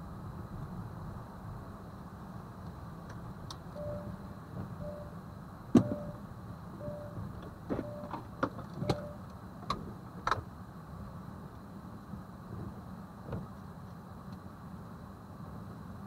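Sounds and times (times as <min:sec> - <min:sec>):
car low rumble: 0:00.0 - 0:16.0
short electronic beeps: 0:03.8 - 0:04.2, 0:04.8 - 0:05.2, 0:05.8 - 0:06.2, 0:06.8 - 0:08.2, 0:08.8 - 0:09.2
sharp clicks and knocks: 0:05.7 - 0:06.1.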